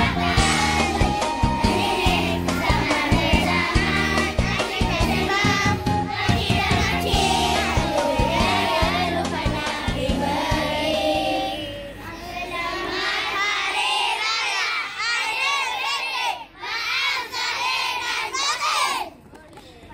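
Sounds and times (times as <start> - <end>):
backing music track: 0.0 - 12.0
children singing in chorus: 0.0 - 18.8.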